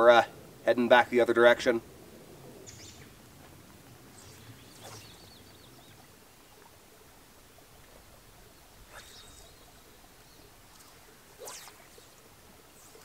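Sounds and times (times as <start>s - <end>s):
small bird calling: 2.6s - 3.2s, 4.1s - 6.8s, 8.4s - 12.2s.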